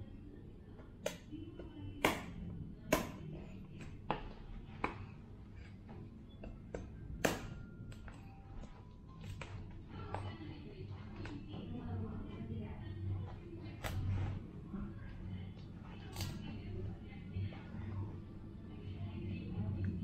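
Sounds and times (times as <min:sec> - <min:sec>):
faint background music: 0:00.0 - 0:20.0.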